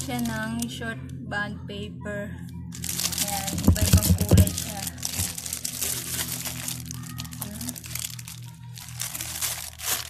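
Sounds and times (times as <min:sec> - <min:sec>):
plastic wrapper crinkling: 0:00.0 - 0:00.5, 0:02.7 - 0:10.0.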